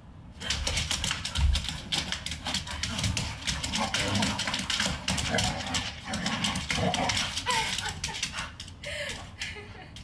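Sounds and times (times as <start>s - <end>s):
dog claws clicking on hardwood: 0.4s - 8.8s.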